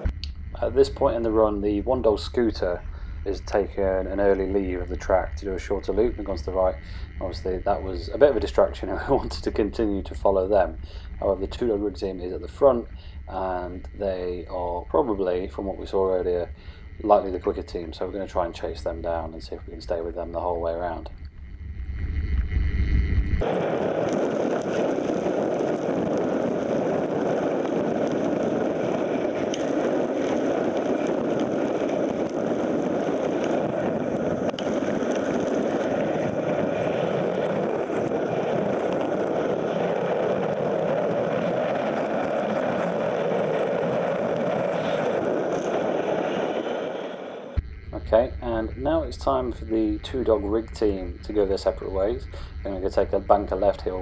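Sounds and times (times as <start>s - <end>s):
wind rushing: 0.0s - 4.0s, 21.4s - 47.6s
bike tyres rolling on dirt: 0.0s - 22.2s, 23.4s - 47.6s, 50.1s - 54.0s.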